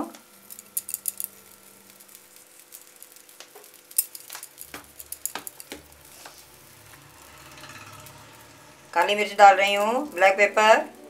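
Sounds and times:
batter frying faintly: 0.0 - 11.0
salt clicking on pan: 0.1 - 8.6.

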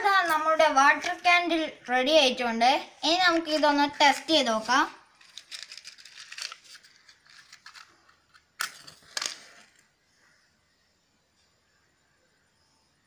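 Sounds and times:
matchbox clicks and rustles: 3.3 - 9.9.

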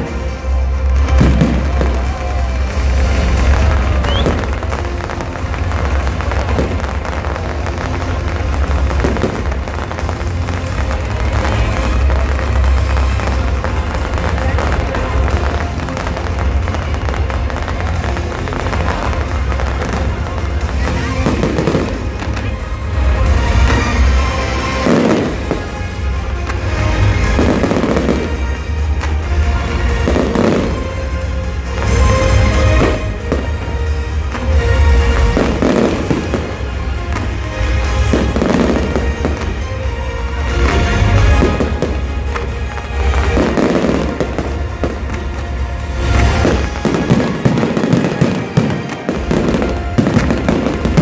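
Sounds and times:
fireworks crackling and bursting: 0.0 - 51.0
music with steady bass: 0.0 - 51.0.

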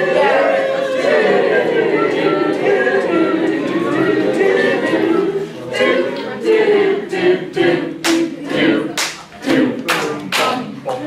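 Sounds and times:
voices singing together: 0.0 - 11.0
sharp hand claps: 8.0 - 8.3, 9.0 - 11.0.

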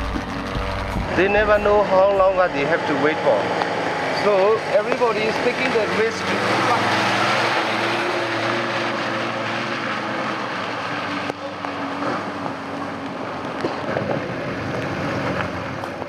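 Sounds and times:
car engines humming: 0.0 - 16.0
tyres on rocky muddy track: 0.0 - 16.0.

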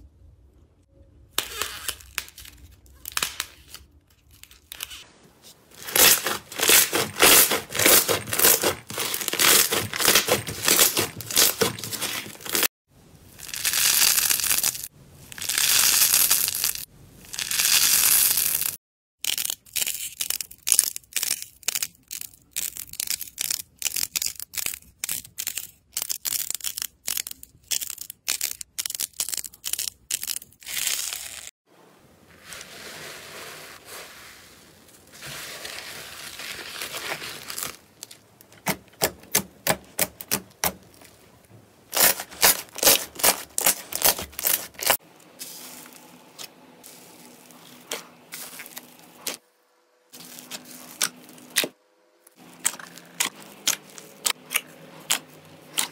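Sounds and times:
sticky slime rustle: 1.6 - 12.7, 32.3 - 38.3, 41.9 - 49.4
crunchy crackles of clay balls: 13.3 - 31.6, 34.9 - 49.4, 50.1 - 55.9.

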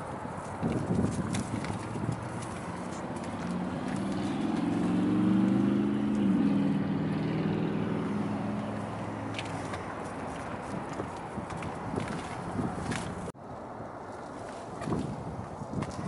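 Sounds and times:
vehicle engine passing by: 1.5 - 10.9.

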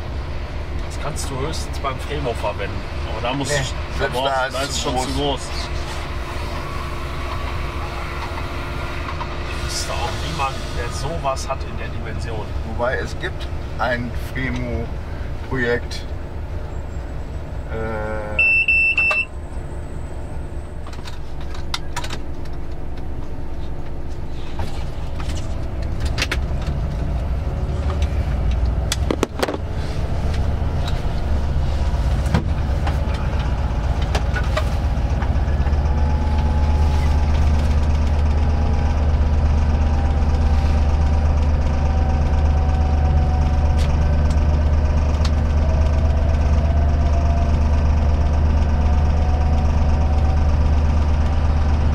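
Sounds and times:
diesel locomotive engine running: 0.0 - 51.9
short electronic beep: 18.4 - 19.3.

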